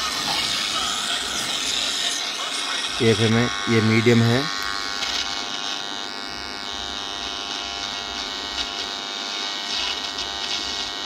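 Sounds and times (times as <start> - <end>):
radio static buzzing: 0.0 - 11.0.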